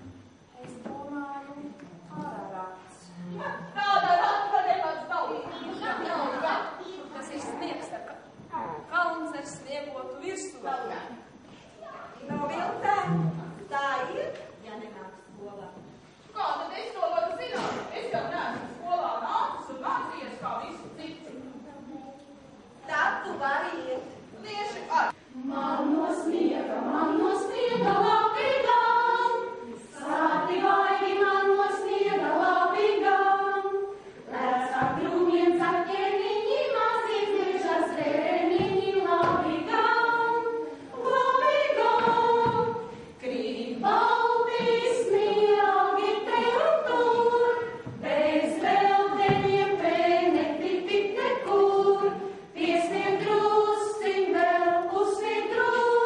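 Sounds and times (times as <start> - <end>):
group of voices singing: 25.3 - 56.0.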